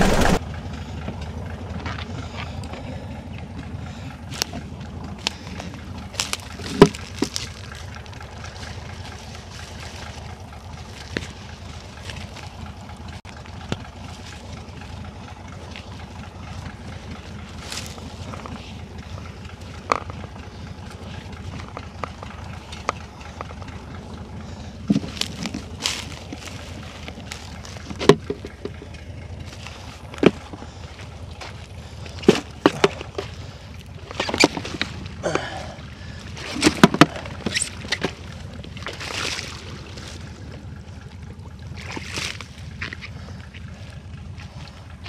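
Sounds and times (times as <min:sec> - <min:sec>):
wet mud squelching: 0:00.0 - 0:00.4, 0:01.0 - 0:45.0
low rumble: 0:00.0 - 0:45.0
dry reeds crackling and snapping: 0:03.9 - 0:45.0.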